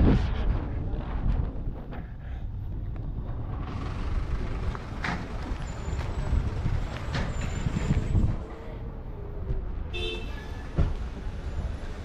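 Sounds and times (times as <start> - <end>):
low engine rumble: 0.0 - 12.0.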